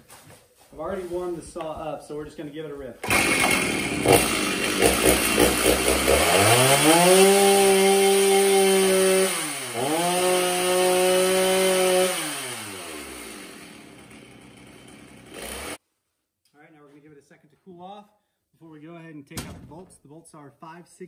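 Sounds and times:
chainsaw engine idling and revving: 3.0s - 15.8s.

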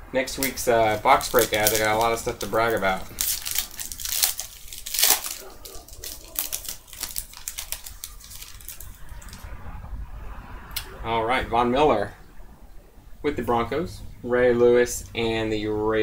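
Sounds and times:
foil wrapper crinkling and tearing: 0.3s - 9.4s.

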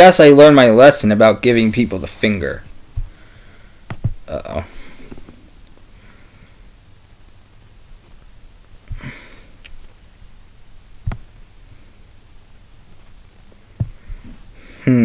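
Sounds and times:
person sniffing: 8.9s - 9.6s.

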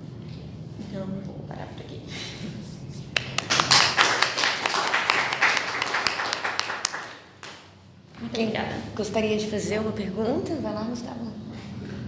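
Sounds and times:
audience applauding: 3.2s - 7.6s.

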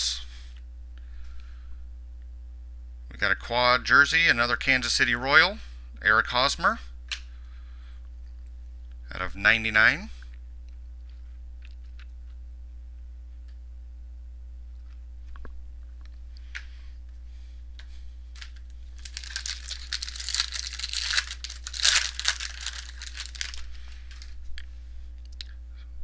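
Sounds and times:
wrapper crinkling and tearing: 18.4s - 24.4s.

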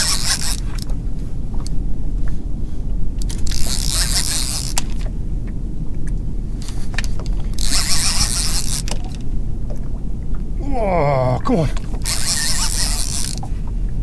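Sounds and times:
fishing reel clicking: 0.0s - 0.9s, 3.2s - 5.0s, 6.6s - 9.2s, 12.0s - 13.5s
reel line hissing: 0.0s - 0.9s, 3.2s - 4.8s, 6.6s - 9.0s, 12.0s - 13.4s
wind rumble on microphone: 0.0s - 14.0s.

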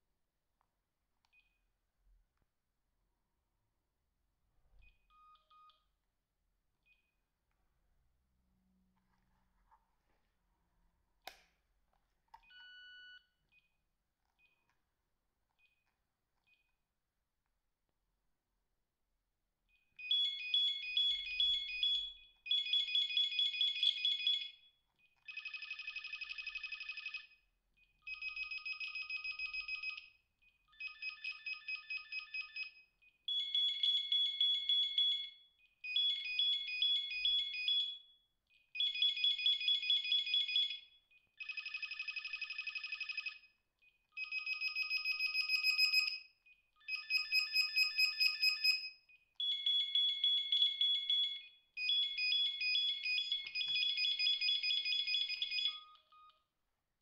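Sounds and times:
electronic phone ringtone trilling: 25.3s - 27.4s, 38.8s - 43.5s, 44.2s - 56.1s.

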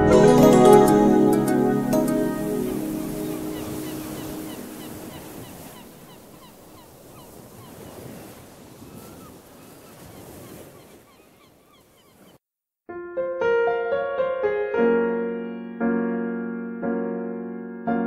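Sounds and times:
background music: 0.0s - 4.8s.

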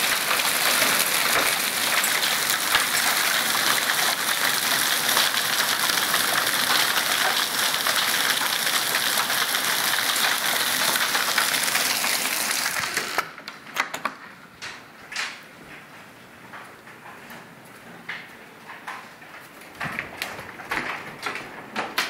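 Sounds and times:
hail and rain on wooden deck: 0.0s - 13.2s, 19.6s - 22.0s.

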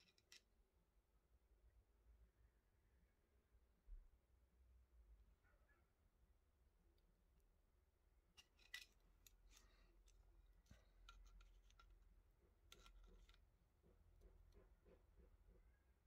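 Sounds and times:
caliper jaw clicking and scraping: 8.4s - 13.5s.

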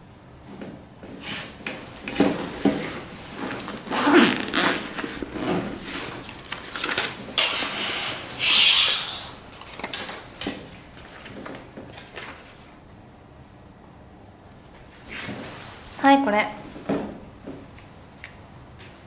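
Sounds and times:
clothing rustling: 0.4s - 7.4s.

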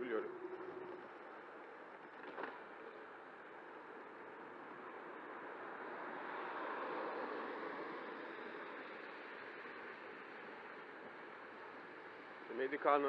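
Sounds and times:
road and wind noise: 0.0s - 13.0s.

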